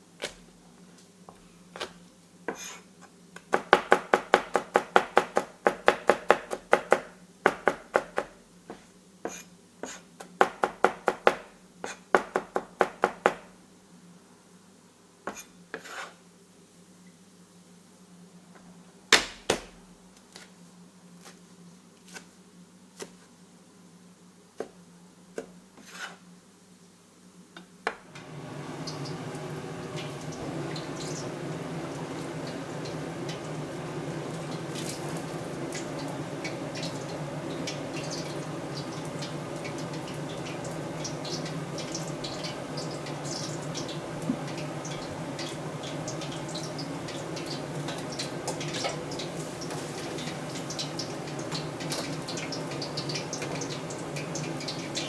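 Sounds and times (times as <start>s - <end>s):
gas burner rushing: 28.1s - 52.8s.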